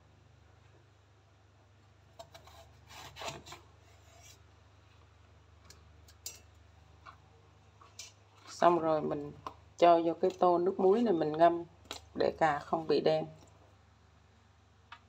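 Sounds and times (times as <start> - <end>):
pieces scraped on board: 2.2 - 4.4.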